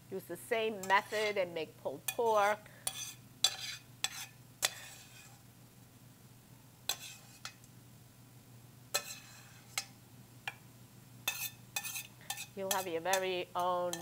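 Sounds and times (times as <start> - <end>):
metal spoon scraping a pan: 0.7 - 5.5, 6.9 - 7.6, 8.9 - 10.6, 11.2 - 14.0.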